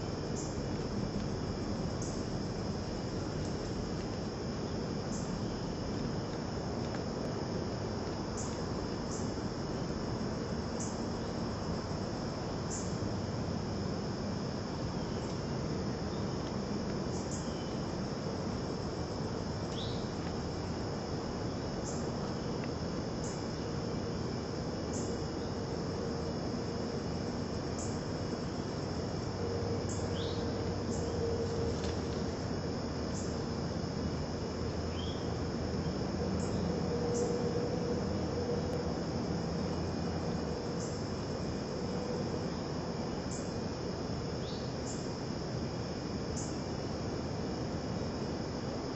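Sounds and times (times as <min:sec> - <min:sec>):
constant hiss: 0:00.0 - 0:48.9
insect trilling: 0:17.0 - 0:33.5.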